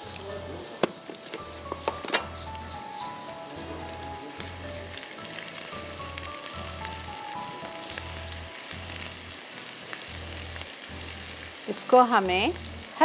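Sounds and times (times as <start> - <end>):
onion sizzling in hot oil: 0.0 - 13.0
wooden spoon stirring: 0.1 - 5.1.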